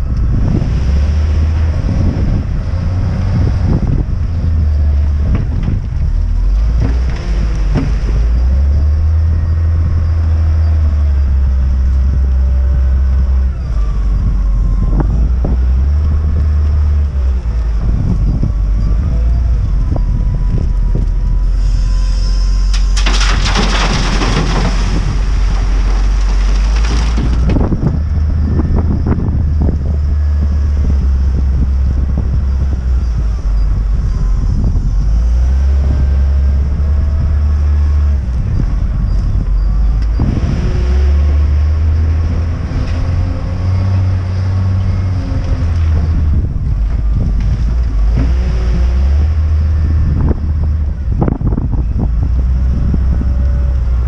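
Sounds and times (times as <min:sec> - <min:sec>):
diesel engine revving: 0:00.0 - 0:54.0
gravel pouring with rushing rattle: 0:22.7 - 0:27.6.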